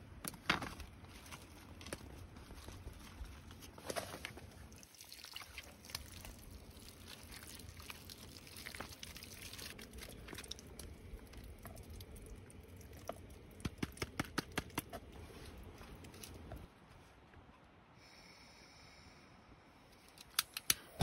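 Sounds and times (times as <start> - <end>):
rain pattering and dripping: 4.7 - 14.5.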